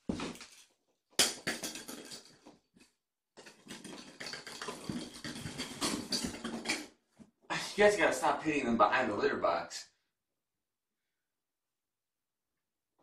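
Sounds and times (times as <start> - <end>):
kittens scampering on hard floor: 3.6 - 6.8.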